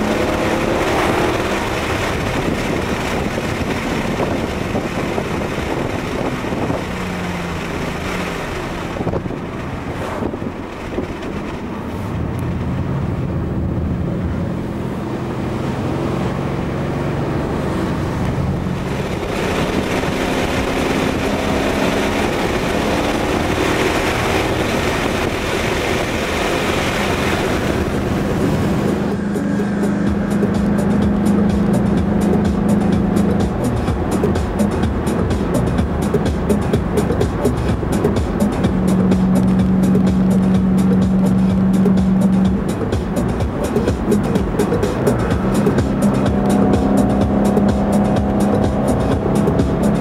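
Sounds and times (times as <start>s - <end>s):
car engine while driving: 0.0s - 50.0s
tyre and wind noise: 0.0s - 50.0s.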